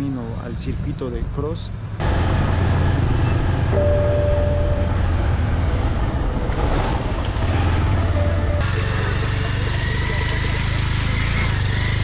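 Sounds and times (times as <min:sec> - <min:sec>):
wind and road rush: 0:00.0 - 0:12.0
motorcycle engine running: 0:01.9 - 0:12.0
brief steady tone: 0:03.7 - 0:06.7, 0:08.2 - 0:08.8.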